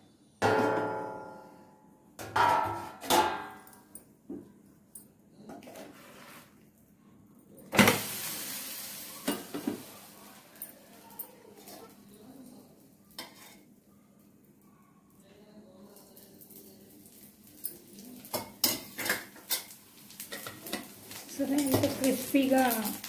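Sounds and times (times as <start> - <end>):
metal lid clanging on frying pan: 0.4 - 1.5, 2.2 - 3.7
flatbread sizzling in hot pan: 7.8 - 12.0, 16.2 - 23.0.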